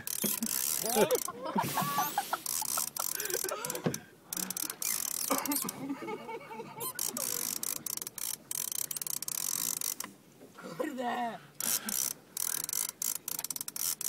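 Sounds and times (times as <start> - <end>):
fishing reel ratcheting and clicking: 0.0 - 1.4, 2.0 - 5.8, 6.8 - 10.1, 11.6 - 14.0.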